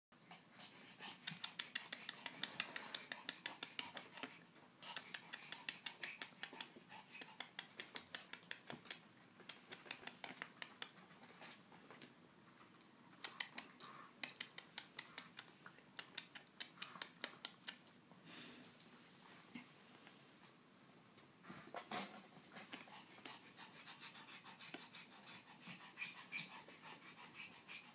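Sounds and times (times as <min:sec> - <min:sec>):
puppy claws clicking on wooden floor: 0:01.2 - 0:11.0, 0:13.2 - 0:17.8.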